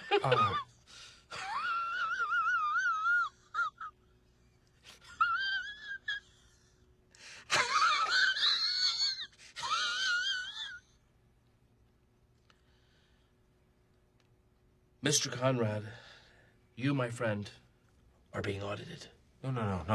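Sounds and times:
man laughing high-pitched: 0:00.0 - 0:00.7, 0:07.5 - 0:10.8.

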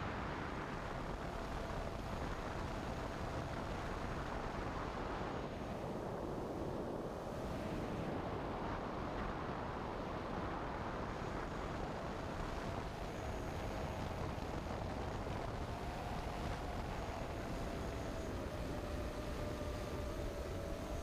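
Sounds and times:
faint wavering whine: 0:00.0 - 0:21.0
wind noise: 0:00.0 - 0:21.0
drone motors humming: 0:12.2 - 0:21.0.

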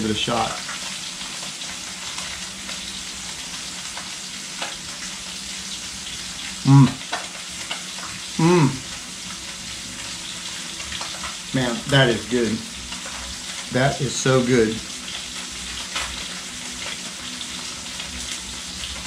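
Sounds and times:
fish sizzling in a pan: 0:00.0 - 0:19.0
man humming: 0:06.6 - 0:07.0, 0:08.4 - 0:08.9.

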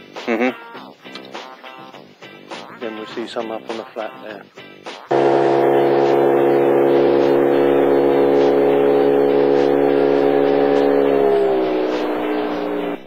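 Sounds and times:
boat motor droning: 0:05.1 - 0:13.0.

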